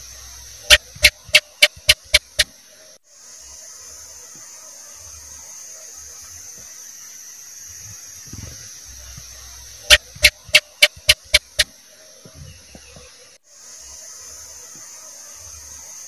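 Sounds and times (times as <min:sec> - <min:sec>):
steady hiss: 0:00.0 - 0:16.0
gecko chirping: 0:00.6 - 0:02.5, 0:09.8 - 0:11.7.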